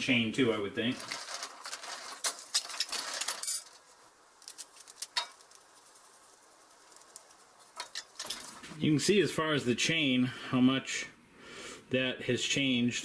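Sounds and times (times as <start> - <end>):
metal parts clinking and rattling: 1.0 - 5.8, 6.8 - 8.7.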